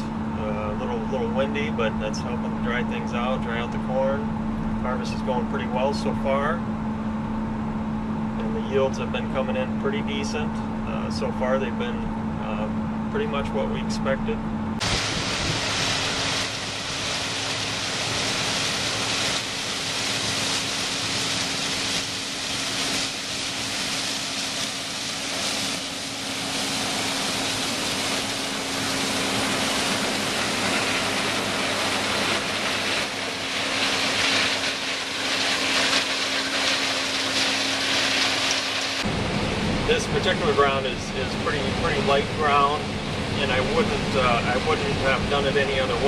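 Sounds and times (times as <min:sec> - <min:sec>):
combine harvester humming: 0:00.0 - 0:46.0.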